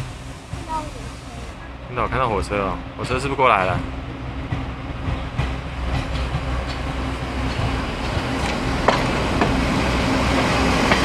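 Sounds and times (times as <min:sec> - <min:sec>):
diesel train engine hum: 0:00.0 - 0:11.0
wheels knocking on rail joints: 0:03.0 - 0:09.6.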